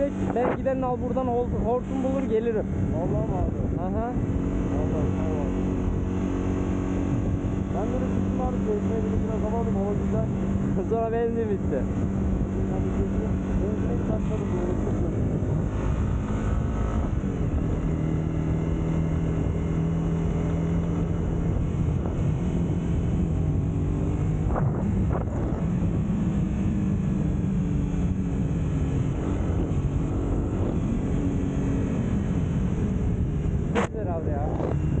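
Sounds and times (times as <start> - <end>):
motorcycle engine running: 0.0 - 35.0
wind and road noise: 0.0 - 35.0.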